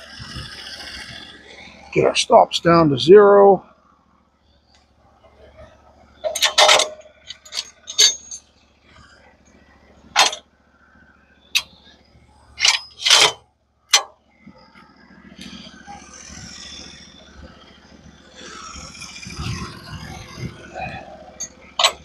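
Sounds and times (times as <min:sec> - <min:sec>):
low running machine sound: 0:00.0 - 0:22.0
metallic clanks and knocks: 0:06.2 - 0:08.5, 0:10.1 - 0:10.4, 0:12.6 - 0:14.2, 0:20.5 - 0:22.0.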